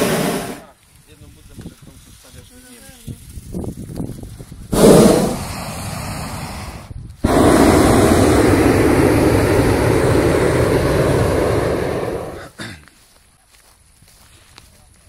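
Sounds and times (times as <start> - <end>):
propane burner firing: 4.7 - 12.4.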